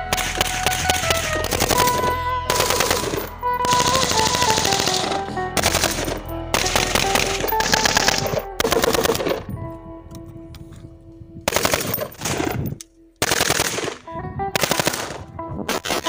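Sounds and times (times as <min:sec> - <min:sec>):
music playing: 0:00.0 - 0:16.0
automatic gunfire bursts: 0:00.1 - 0:09.4, 0:11.5 - 0:12.6, 0:13.2 - 0:14.0, 0:14.6 - 0:15.2.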